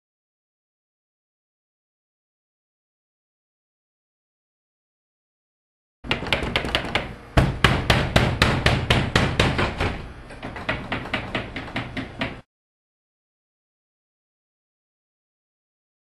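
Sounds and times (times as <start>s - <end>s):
fists knocking on glass door: 6.0s - 12.5s.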